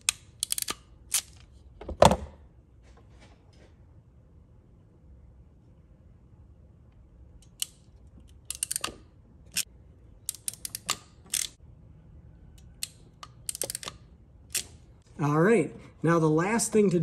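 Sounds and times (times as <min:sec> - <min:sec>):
hand crimper clicking: 0:00.0 - 0:01.5, 0:07.4 - 0:11.6, 0:12.6 - 0:14.8.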